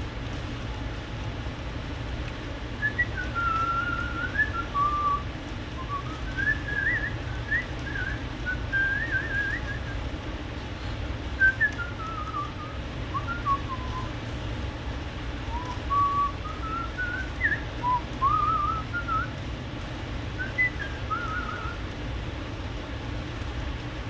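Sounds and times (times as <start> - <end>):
low background hum: 0.0 - 24.0
person whistling a tune: 2.8 - 10.0, 11.4 - 14.1, 15.5 - 19.3, 20.4 - 21.8.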